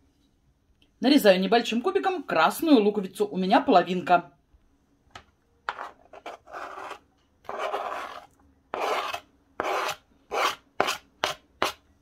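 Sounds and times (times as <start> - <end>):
knife scraping cutting board: 5.7 - 11.8.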